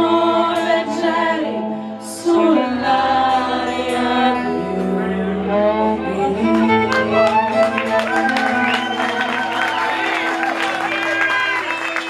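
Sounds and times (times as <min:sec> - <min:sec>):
women singing: 0:00.0 - 0:07.0
acoustic guitar: 0:00.0 - 0:10.6
violin: 0:00.0 - 0:12.0.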